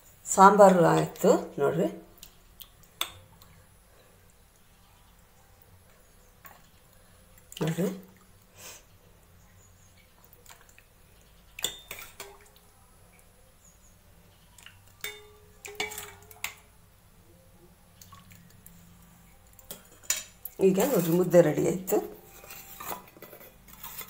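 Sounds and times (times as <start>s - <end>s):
thick liquid pouring and dripping: 10.0s - 12.7s, 18.0s - 18.8s
ladle clinking against steel pot: 11.6s - 12.4s, 15.0s - 16.6s.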